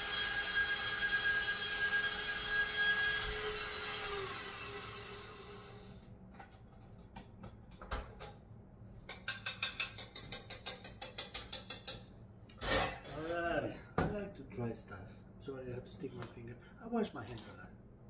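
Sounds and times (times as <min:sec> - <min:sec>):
stand mixer motor whirring: 0:00.0 - 0:05.9.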